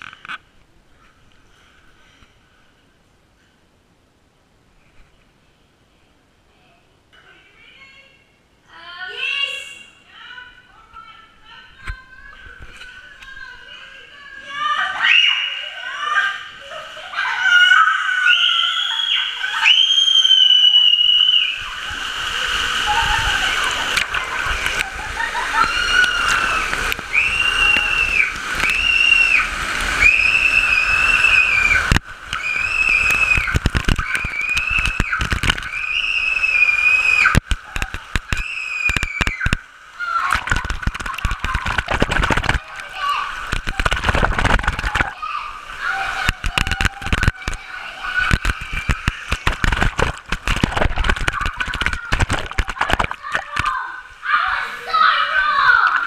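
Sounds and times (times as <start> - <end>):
children screaming: 12.1 - 49.9, 50.5 - 56.0
water sloshing and splashing: 21.2 - 56.0.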